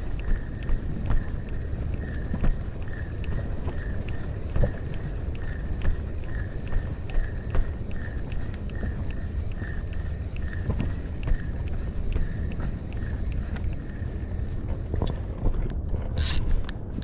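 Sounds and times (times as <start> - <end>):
wind rumbling on microphone: 0.0 - 17.0
fishing reel whirring: 16.2 - 16.5.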